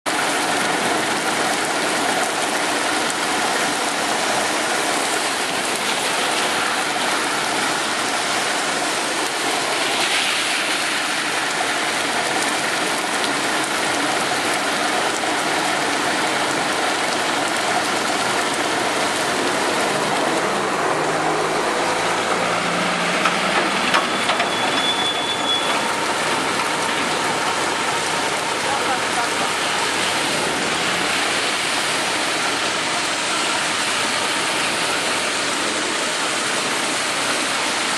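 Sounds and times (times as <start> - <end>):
rain falling on pavement: 0.1 - 37.9
passing vehicle engine: 19.4 - 24.0.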